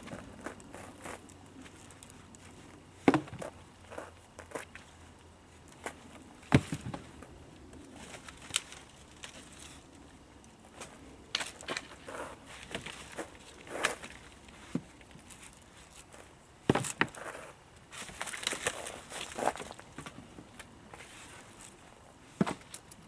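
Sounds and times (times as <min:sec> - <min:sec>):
twigs rustling: 0:00.0 - 0:23.0
dry branches cracking: 0:05.6 - 0:17.2, 0:17.8 - 0:21.8.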